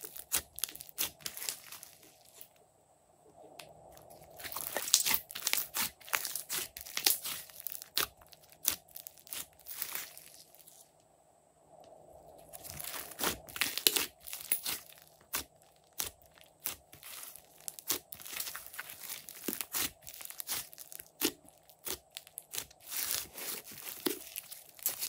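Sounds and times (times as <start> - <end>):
slime squishing and popping: 4.1 - 10.4, 12.6 - 25.0.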